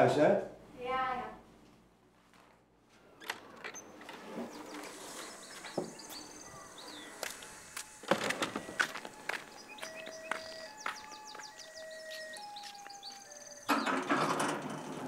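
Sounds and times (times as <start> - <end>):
faint high bird chirps: 3.7 - 7.6, 9.4 - 14.1.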